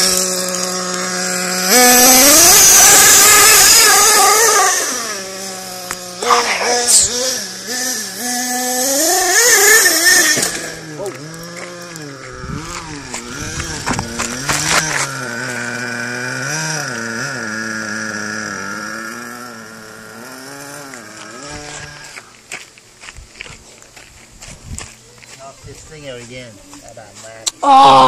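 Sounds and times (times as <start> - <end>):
rc car engine at high revs: 0.0 - 22.4.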